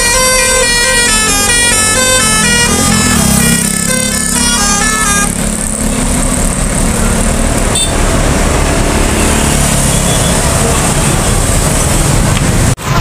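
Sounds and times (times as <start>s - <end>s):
bus horn playing a tune: 0.0s - 5.6s, 7.7s - 8.0s
engine noise: 0.0s - 13.0s
motorcycles passing: 0.1s - 13.0s.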